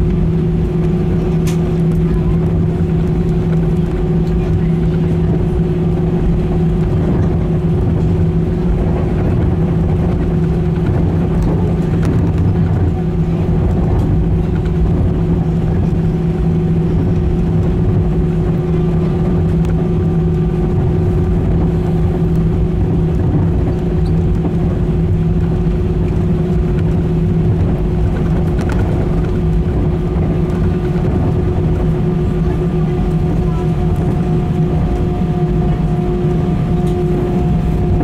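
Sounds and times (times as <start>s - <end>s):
jet engines droning: 0.0s - 38.0s.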